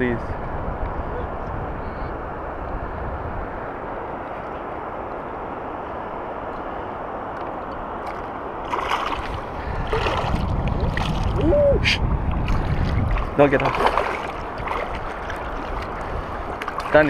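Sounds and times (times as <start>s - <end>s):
wind on microphone: 0.0s - 17.0s
river water rushing: 2.2s - 17.0s
fish splashing at surface: 8.1s - 11.4s, 12.4s - 16.0s.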